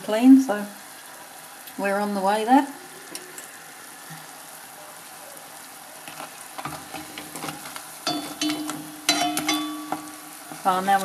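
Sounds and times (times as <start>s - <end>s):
dough sizzling in hot oil: 0.0s - 11.0s
metal utensil scraping pot: 6.6s - 10.8s.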